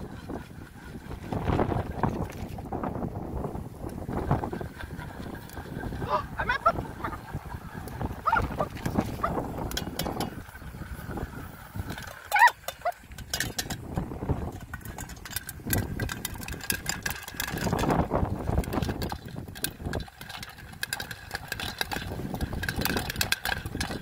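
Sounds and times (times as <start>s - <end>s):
steady rushing stove noise: 0.0s - 24.0s
popcorn popping in a pot: 7.9s - 24.0s.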